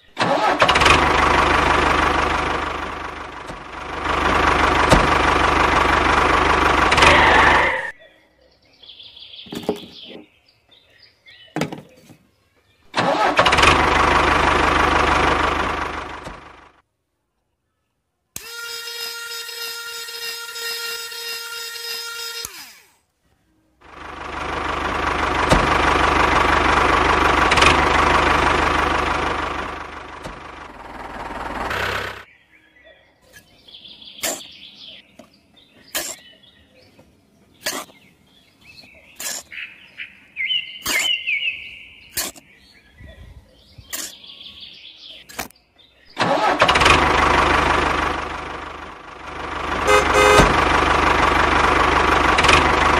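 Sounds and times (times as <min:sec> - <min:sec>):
birds chirping: 0:02.0 - 0:13.0, 0:30.0 - 0:46.2
toy electric motor humming: 0:18.4 - 0:23.0.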